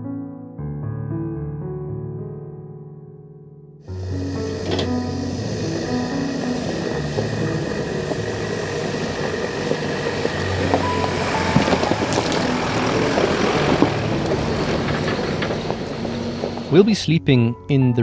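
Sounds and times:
soft keyboard background music: 1.5 - 18.0
pickup truck engine running: 3.9 - 16.9
tyres crunching over loose stones: 8.0 - 16.8.

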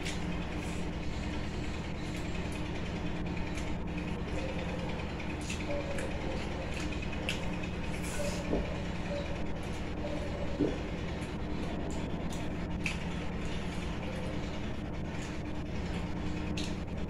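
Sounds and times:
low background hum: 0.0 - 17.0
chewing: 3.4 - 8.5.

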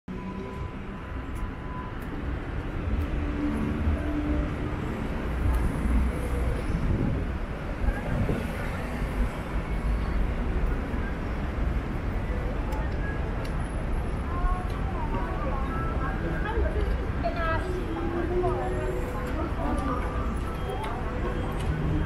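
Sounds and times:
traffic rumble: 0.1 - 22.0
people talking: 12.3 - 22.0.

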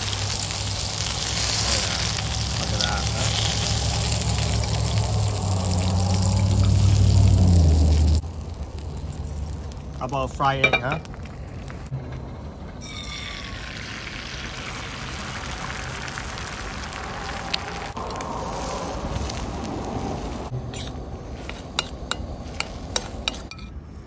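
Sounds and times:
egg sizzling in frying pan: 0.0 - 11.9, 12.8 - 20.5
spoon scraping metal pan: 20.7 - 23.7.

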